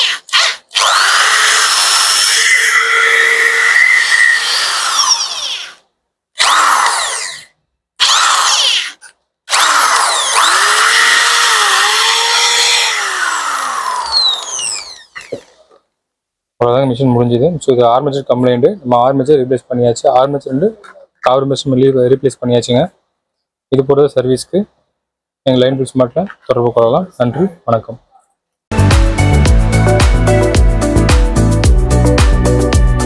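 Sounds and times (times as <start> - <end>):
electric drill motor whine: 0.7 - 3.7, 4.4 - 5.8, 6.4 - 8.9, 9.5 - 15.5.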